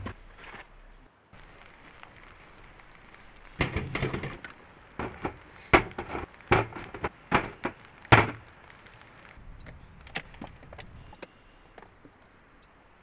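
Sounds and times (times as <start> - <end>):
irregular knocks and thuds: 3.6 - 8.4.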